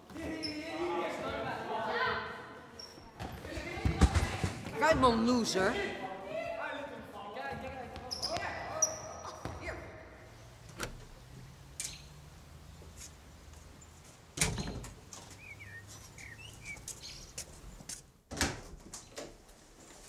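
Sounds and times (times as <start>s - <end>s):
bird chirps: 11.8s - 12.2s, 14.6s - 17.4s.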